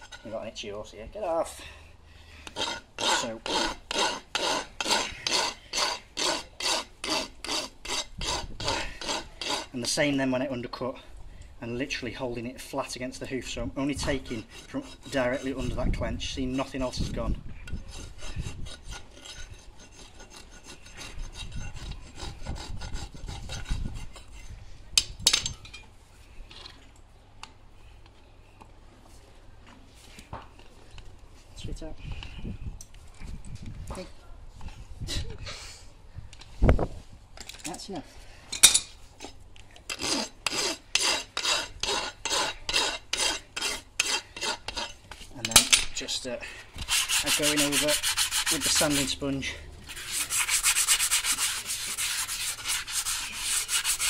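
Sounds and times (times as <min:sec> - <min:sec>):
rasp filing hoof: 0:02.4 - 0:10.0, 0:14.0 - 0:24.6, 0:39.9 - 0:45.0, 0:46.8 - 0:49.2, 0:49.9 - 0:54.0.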